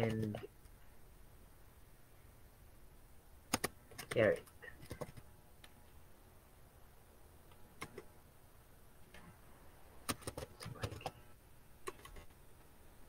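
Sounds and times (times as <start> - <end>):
computer keyboard clicks: 3.5 - 4.2, 4.8 - 5.2, 10.1 - 11.2, 11.8 - 12.3.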